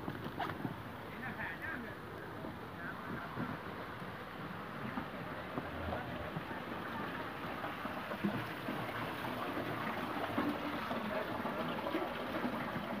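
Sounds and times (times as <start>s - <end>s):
water running and trickling: 3.6s - 13.0s.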